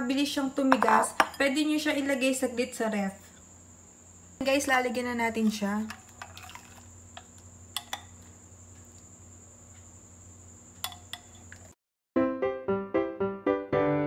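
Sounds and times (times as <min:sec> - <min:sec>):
faint steady hum: 0:00.0 - 0:11.8
metal spoon clinking ceramic bowl: 0:07.8 - 0:08.1, 0:10.8 - 0:11.6
piano music: 0:12.2 - 0:14.0.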